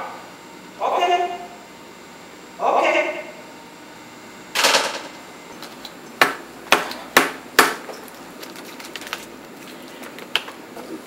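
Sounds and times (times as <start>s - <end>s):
sharp knocks: 6.2s - 7.9s.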